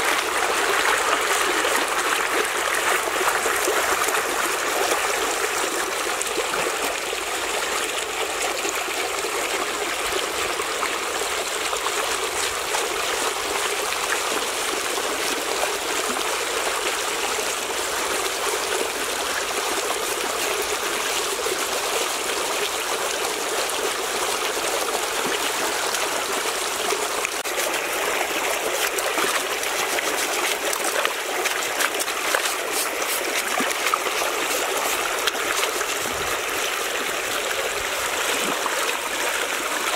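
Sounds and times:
stream running over rocks: 0.0s - 39.9s
hands splashing in water: 27.3s - 36.7s.

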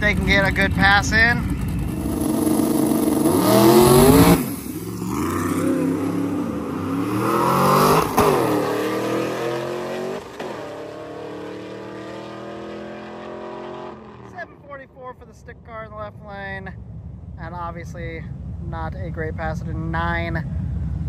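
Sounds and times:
drag car engines revving hard: 0.0s - 14.4s
tires spinning: 0.0s - 14.5s.

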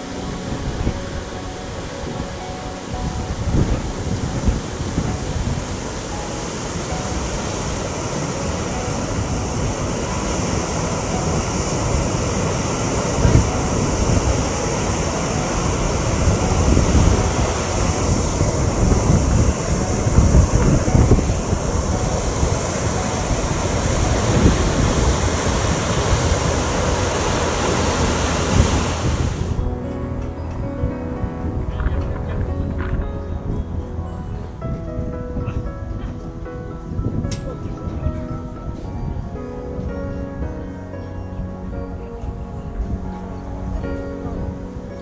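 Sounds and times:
water rushing through sluices: 0.0s - 29.6s
wind buffeting microphone: 0.0s - 45.0s.

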